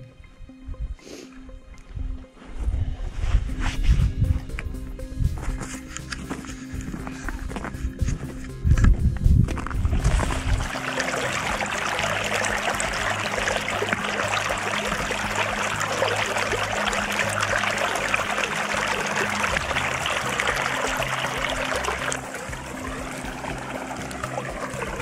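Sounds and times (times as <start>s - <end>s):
running water rushing: 9.6s - 25.0s.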